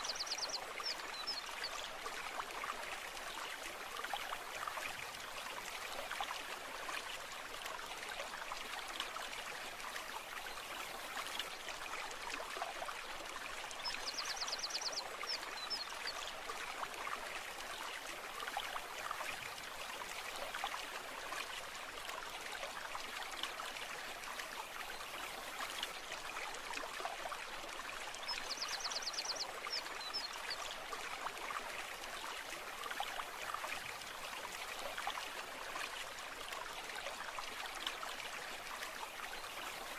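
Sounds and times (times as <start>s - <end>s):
stream babbling over stones: 0.0s - 39.9s.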